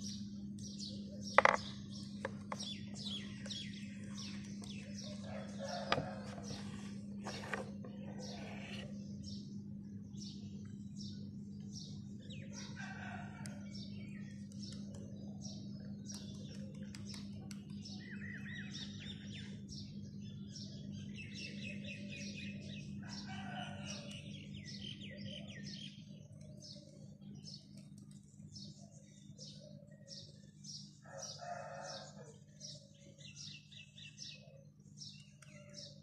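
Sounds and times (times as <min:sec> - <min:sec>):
small birds chirping: 0:00.0 - 0:36.0
steady low hum: 0:00.0 - 0:36.0
rooster crowing: 0:05.0 - 0:06.8, 0:12.5 - 0:13.9, 0:23.0 - 0:24.3, 0:31.0 - 0:32.4.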